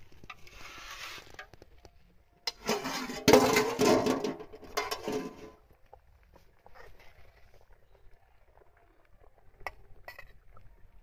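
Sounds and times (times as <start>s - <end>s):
metal spoon scraping cooking pot: 2.5s - 5.5s.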